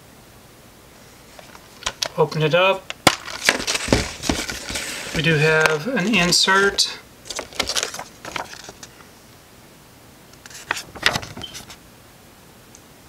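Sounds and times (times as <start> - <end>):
paper rustling: 3.0 - 9.0, 10.4 - 11.8.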